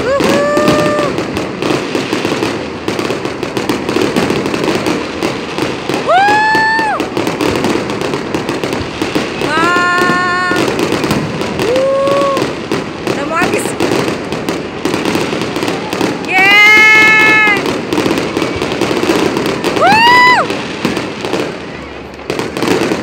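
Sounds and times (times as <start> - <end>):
onlookers whooping: 0.0 - 1.3, 5.9 - 7.3, 11.4 - 12.6, 15.5 - 17.7, 18.4 - 21.4
fireworks crackling and banging: 0.0 - 23.0.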